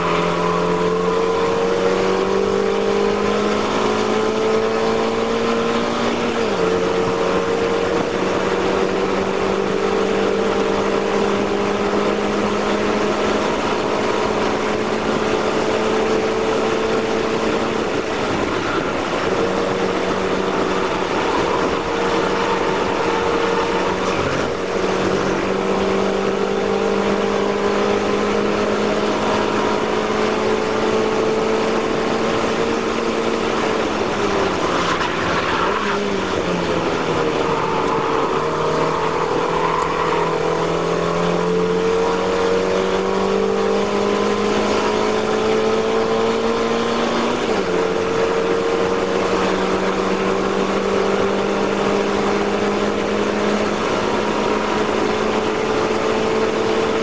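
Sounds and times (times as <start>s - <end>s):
race car engine at high revs: 0.0s - 57.0s.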